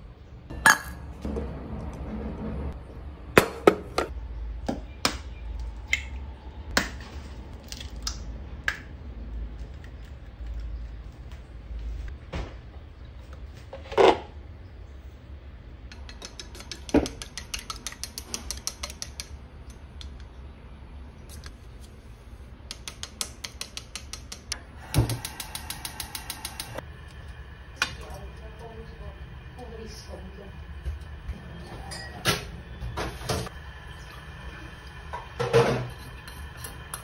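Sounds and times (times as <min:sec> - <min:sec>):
chopsticks clicking against metal bowl: 0:15.9 - 0:19.3, 0:22.7 - 0:26.8.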